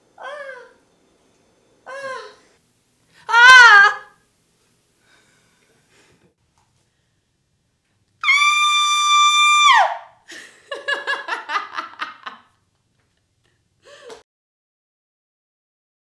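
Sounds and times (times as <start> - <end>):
woman screaming: 3.3 - 4.2, 8.2 - 10.1
woman laughing: 10.3 - 12.5.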